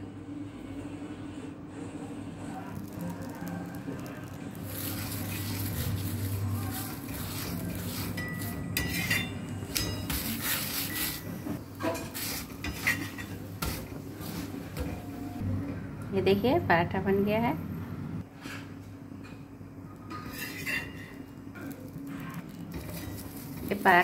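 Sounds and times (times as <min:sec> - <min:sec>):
metal spatula scraping iron griddle: 0:04.6 - 0:14.6, 0:20.1 - 0:24.0.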